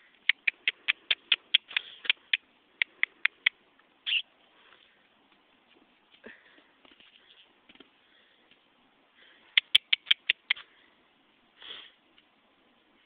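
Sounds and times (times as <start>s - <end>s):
rapid tongue clicks: 0.2s - 3.6s, 9.5s - 10.6s.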